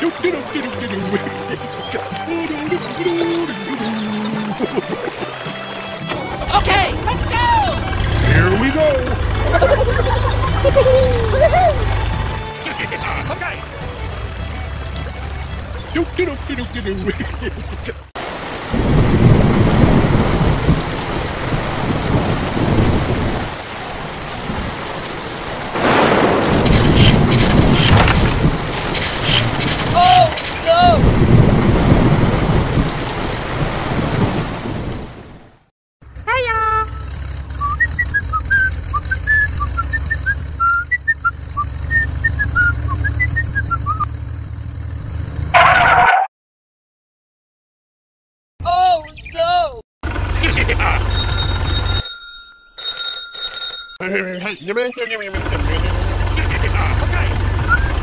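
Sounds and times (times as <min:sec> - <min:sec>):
tractor engine rumble: 0:00.0 - 0:18.4, 0:19.2 - 0:33.3, 0:36.0 - 0:45.4
heavy rain: 0:00.0 - 0:35.7
rolling thunder: 0:18.6 - 0:28.8, 0:31.0 - 0:35.1
loud noisy burst: 0:25.8 - 0:30.0
short high chirps: 0:51.1 - 0:54.0.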